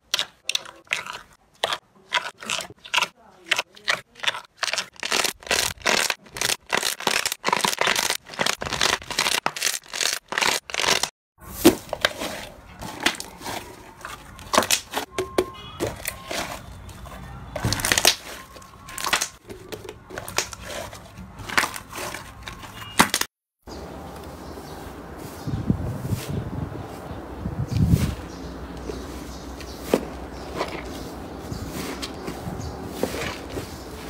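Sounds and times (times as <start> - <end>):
slime squishing and popping: 4.2 - 11.1, 17.6 - 20.7.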